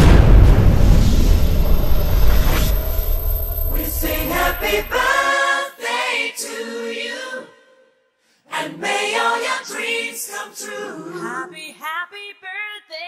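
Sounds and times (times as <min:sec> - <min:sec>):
deep explosion rumble: 0:00.0 - 0:05.1
choir singing unaccompanied: 0:02.8 - 0:07.8, 0:08.5 - 0:11.7.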